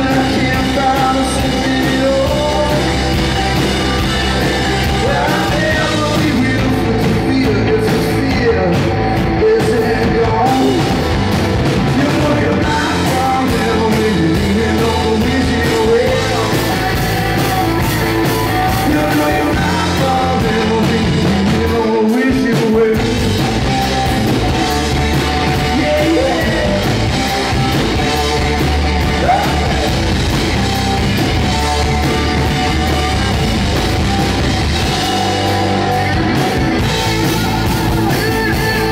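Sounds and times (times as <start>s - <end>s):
bass guitar: 0.0s - 38.9s
drum kit: 0.0s - 38.9s
electric guitars: 0.0s - 38.9s
man singing: 0.0s - 38.9s.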